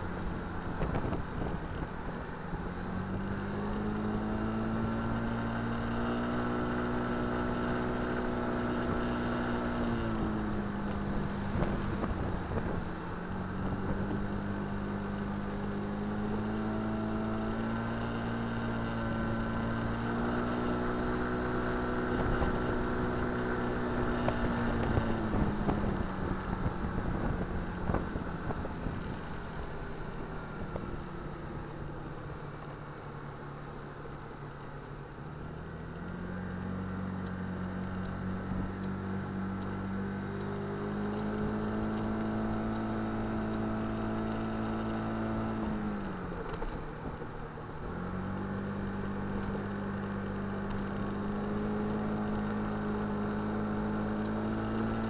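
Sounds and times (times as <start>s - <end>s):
wind noise on microphone: 0.0s - 2.0s, 10.0s - 14.5s, 22.1s - 29.3s
scooter engine drone: 0.0s - 55.0s.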